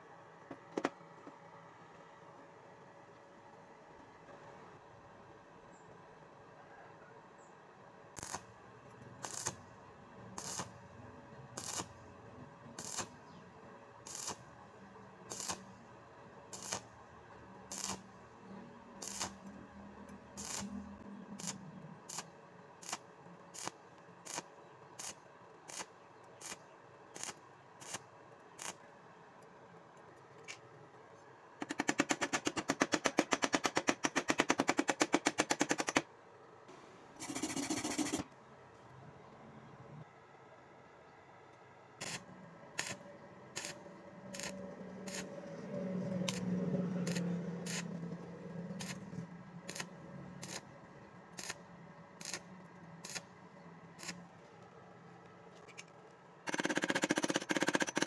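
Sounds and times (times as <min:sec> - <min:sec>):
welding arc crackling: 0:08.2 - 0:08.5, 0:09.2 - 0:09.6, 0:10.4 - 0:10.8, 0:11.6 - 0:12.0, 0:12.8 - 0:13.2, 0:14.0 - 0:14.4, 0:15.3 - 0:15.8, 0:16.5 - 0:16.9, 0:17.7 - 0:18.2, 0:19.0 - 0:19.5, 0:20.3 - 0:23.0, 0:27.2 - 0:28.0, 0:42.8 - 0:45.3, 0:47.0 - 0:47.9, 0:49.6 - 0:50.7, 0:51.4 - 0:51.6, 0:52.2 - 0:53.3.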